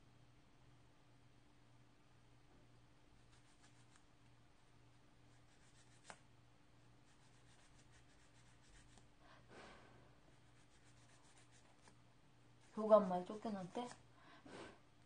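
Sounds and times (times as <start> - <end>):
nail file scratching fingernails: 3.2 - 4.1, 5.3 - 6.2, 7.1 - 9.1, 10.4 - 12.0.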